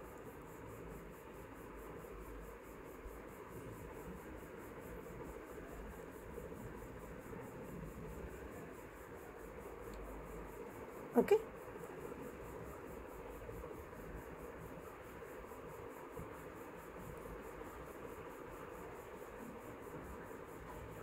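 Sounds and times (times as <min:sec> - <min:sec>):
faint background hiss: 0:00.0 - 0:21.0.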